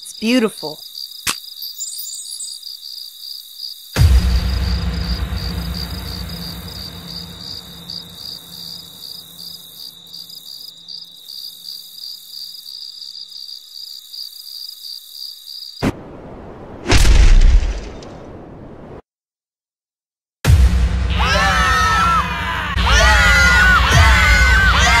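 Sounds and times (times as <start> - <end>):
crickets chirping: 0.0 - 15.8
sharp click: 1.2 - 1.4
deep boom: 4.0 - 8.8, 15.8 - 18.5.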